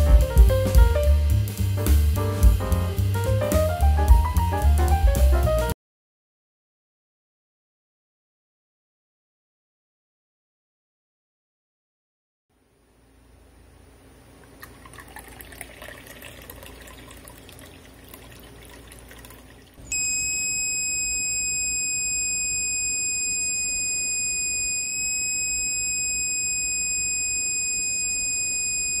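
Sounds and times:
water pouring into teacup: 0:14.4 - 0:19.8
high-pitched alarm buzzer: 0:19.9 - 0:29.0.

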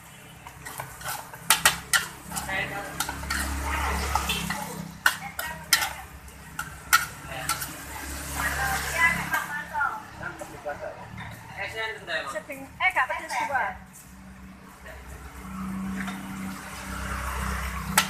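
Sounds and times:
metal spatula scraping wok: 0:00.1 - 0:09.5, 0:15.5 - 0:18.0.

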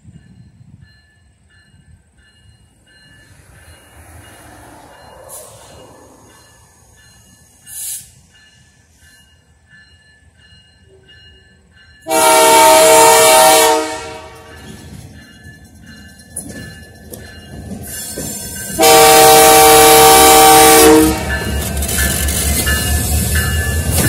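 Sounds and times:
train clicks and rumble: 0:00.0 - 0:24.0
locomotive air horn blasts: 0:12.0 - 0:14.5, 0:18.8 - 0:21.5.

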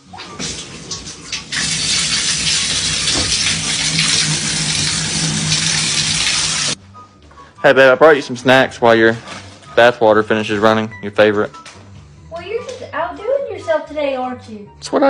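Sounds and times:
tap water running into bathtub: 0:00.0 - 0:06.8.

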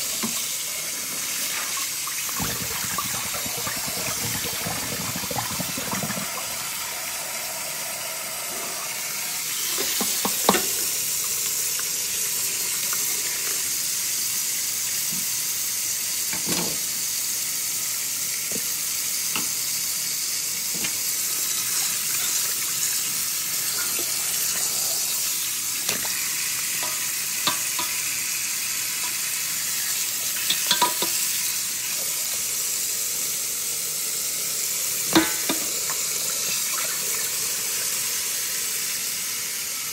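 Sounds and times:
tap water running into bowl: 0:00.0 - 0:13.8, 0:20.7 - 0:32.6, 0:34.2 - 0:39.2.

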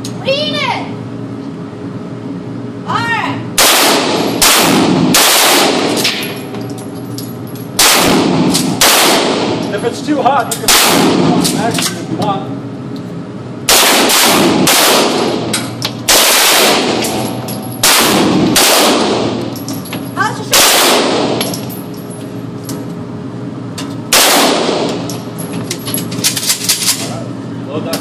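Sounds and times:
gunshots echoing indoors: 0:03.6 - 0:06.4, 0:07.8 - 0:09.6, 0:10.6 - 0:11.6, 0:13.6 - 0:19.6, 0:20.5 - 0:21.6, 0:24.1 - 0:25.1.

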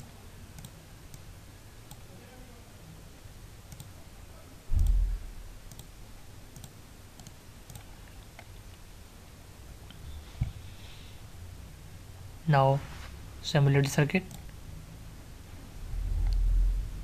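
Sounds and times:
computer mouse clicking: 0:00.6 - 0:01.3, 0:03.7 - 0:03.9, 0:05.7 - 0:05.9, 0:06.5 - 0:08.8, 0:13.8 - 0:14.6, 0:16.2 - 0:16.5.

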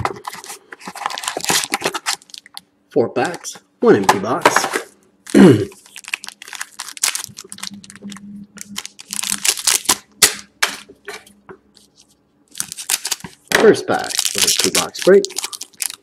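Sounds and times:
foil card packs crinkling: 0:00.0 - 0:02.6, 0:05.3 - 0:10.4, 0:11.8 - 0:16.0.

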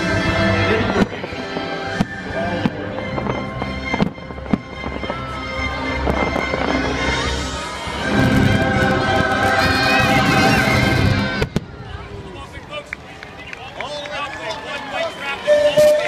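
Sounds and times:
loud show music: 0:00.0 - 0:11.6
fireworks bangs: 0:00.7 - 0:13.1.

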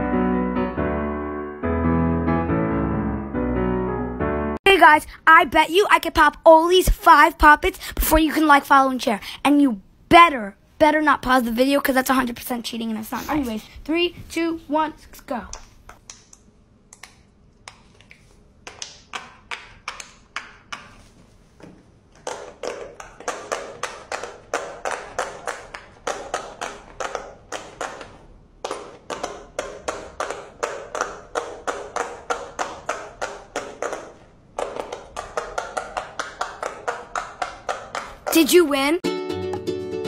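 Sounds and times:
pop-it toy bubbles popping: 0:22.3 - 0:38.4.

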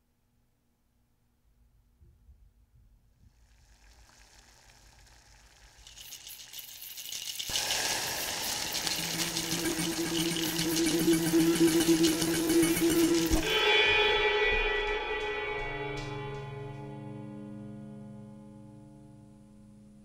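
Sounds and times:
hissing noise: 0:03.7 - 0:13.7.

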